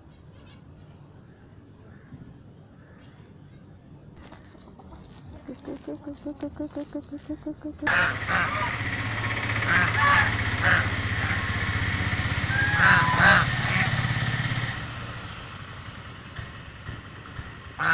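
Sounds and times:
engine drone: 4.2s - 17.9s
geese honking: 5.5s - 8.8s, 9.6s - 11.5s, 12.4s - 13.9s.

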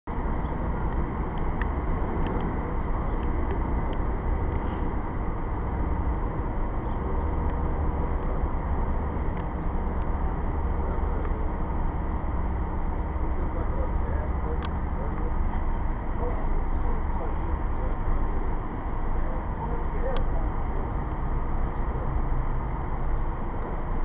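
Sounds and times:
traffic rumble: 0.1s - 24.0s.

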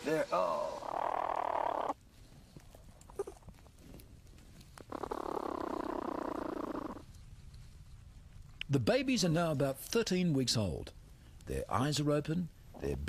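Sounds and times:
young animals buzzing calls: 0.8s - 2.0s, 4.9s - 7.0s.

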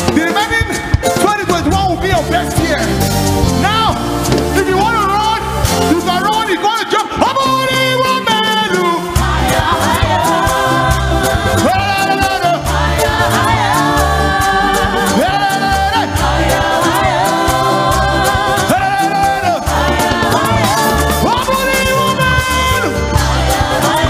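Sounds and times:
band with keyboard and beat: 0.0s - 24.0s
lead singer: 0.0s - 24.0s
backing singers: 8.7s - 24.0s.

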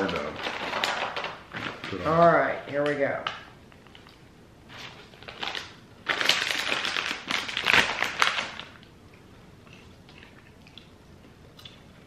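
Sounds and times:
plastic snack bag crinkling: 0.0s - 8.9s.

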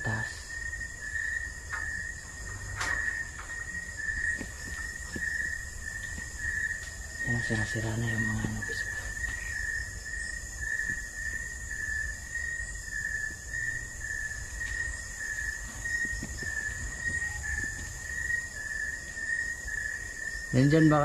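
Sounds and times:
night insects trilling: 0.0s - 21.0s
footsteps: 1.7s - 9.5s, 14.5s - 19.2s.

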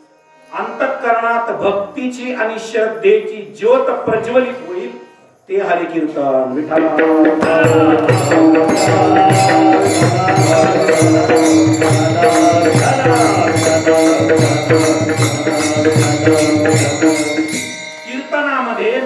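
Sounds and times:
harmonium chords: 6.7s - 19.0s
hand drum beat: 6.8s - 17.5s
small hand cymbals: 7.2s - 19.0s.

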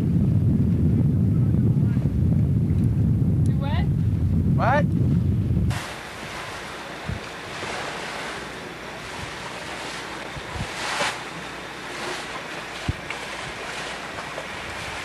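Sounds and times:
low wind buffeting thumps: 0.0s - 15.0s
wind on microphone: 0.0s - 15.0s
sea water rushing past boat: 4.0s - 15.0s
water splash: 5.7s - 15.0s.

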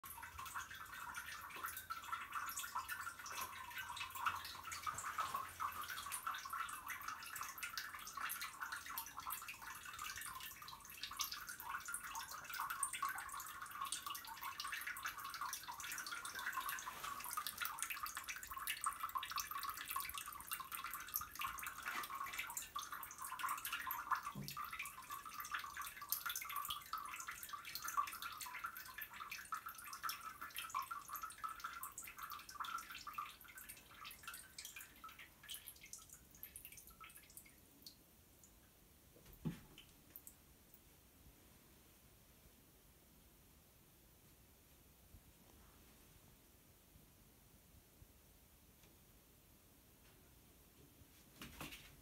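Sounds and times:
water trickling: 0.0s - 40.9s
water dripping: 0.0s - 41.0s.

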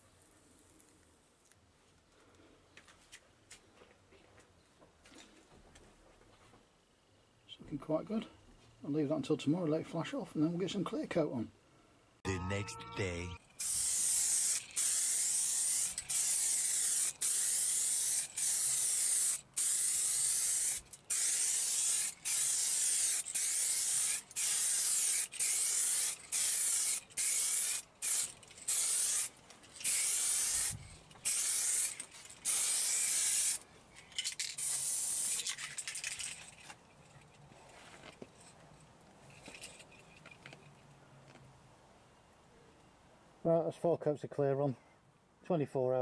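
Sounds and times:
aerosol can spraying hiss: 13.6s - 33.6s, 34.6s - 35.4s.

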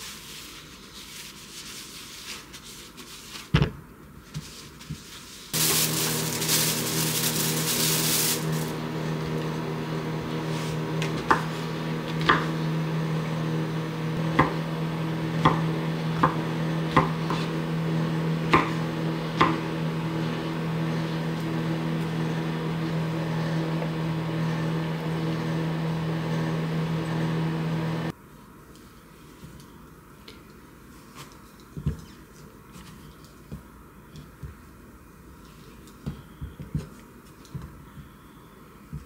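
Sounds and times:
microwave oven humming: 5.6s - 28.1s
knife chopping on wooden board: 16.2s - 17.5s, 18.5s - 18.8s.

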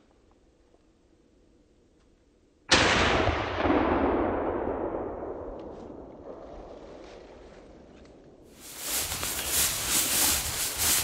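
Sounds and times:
rifle shot with echo: 2.7s - 6.4s.

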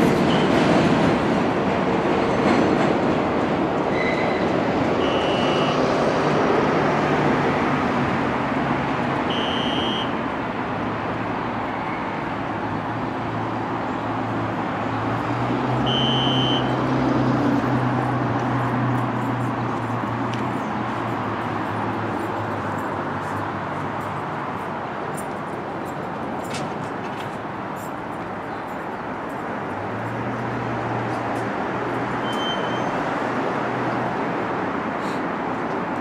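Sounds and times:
subway train wheels rumbling: 0.0s - 9.4s
short high beep: 5.0s - 5.8s, 9.3s - 10.1s, 15.9s - 16.7s, 32.2s - 32.9s.

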